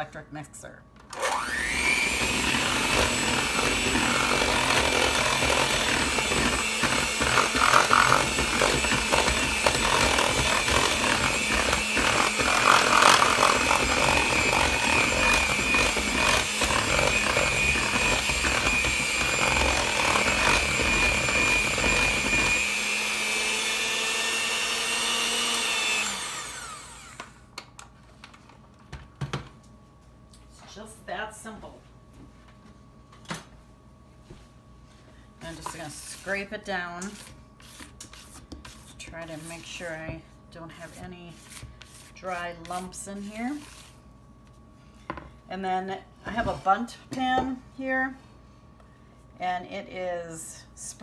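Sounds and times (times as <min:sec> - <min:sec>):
electric hand mixer whining: 0:01.1 - 0:27.4
beaters churning batter: 0:01.7 - 0:26.5.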